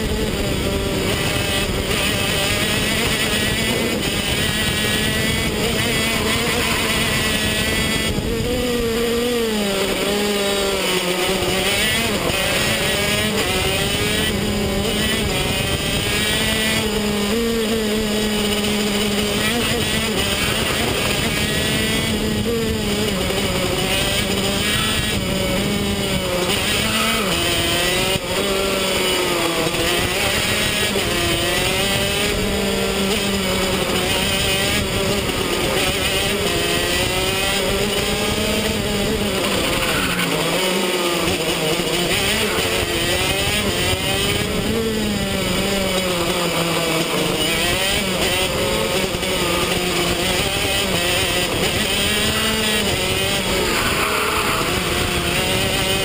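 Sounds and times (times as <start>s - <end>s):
kart engine revving: 0.0s - 56.0s.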